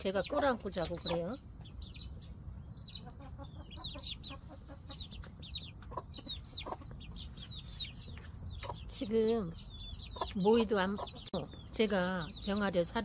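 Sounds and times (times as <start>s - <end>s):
chicks peeping: 0.0s - 13.0s
hen clucking softly: 2.9s - 7.2s.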